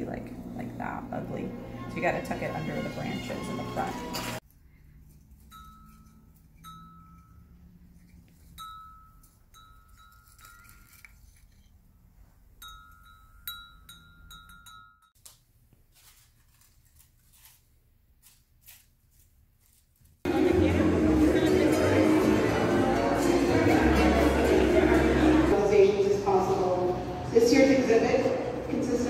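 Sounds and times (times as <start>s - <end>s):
soft bell-like chime: 5.4s - 7.6s.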